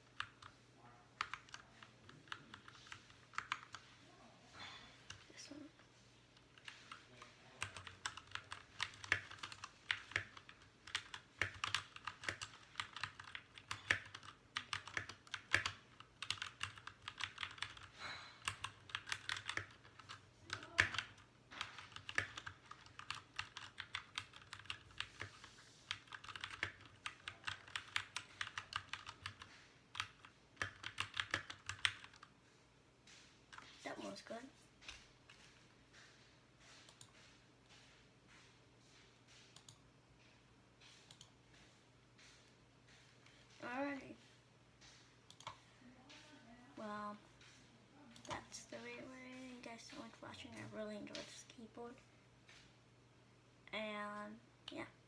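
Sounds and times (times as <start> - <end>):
mechanical keyboard typing: 0.0 - 0.5, 1.2 - 3.8, 6.5 - 32.3.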